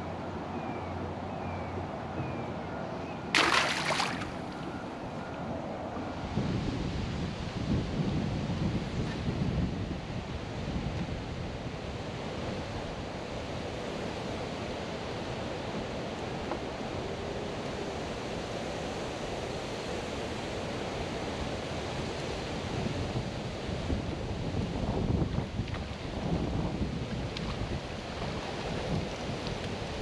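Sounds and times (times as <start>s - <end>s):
wind buffeting microphone: 0.0s - 13.2s, 22.7s - 30.0s.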